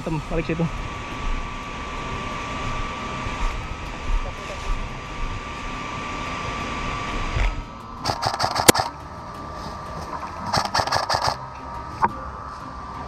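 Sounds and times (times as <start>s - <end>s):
sharp crack: 7.4s - 9.0s, 10.0s - 11.4s
airsoft gun firing bursts: 8.0s - 8.9s, 10.5s - 11.4s.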